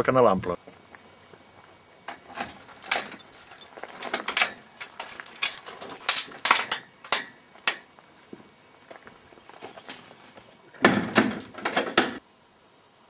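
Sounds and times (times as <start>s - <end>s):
keys jangling: 2.1s - 7.2s
metal lock clicking: 2.1s - 7.8s.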